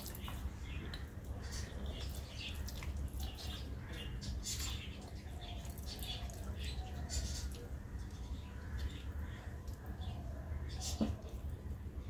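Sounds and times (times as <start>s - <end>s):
wet rice squelching: 0.0s - 7.8s
low steady hum: 0.0s - 12.0s.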